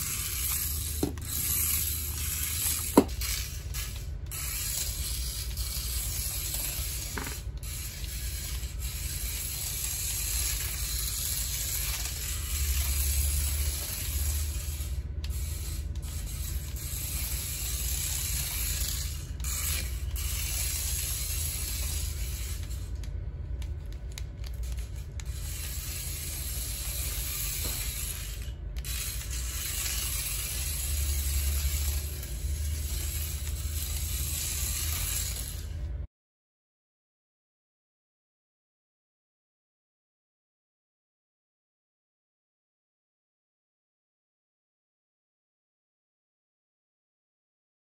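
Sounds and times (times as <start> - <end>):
toy car motor whirring: 0.0 - 35.8.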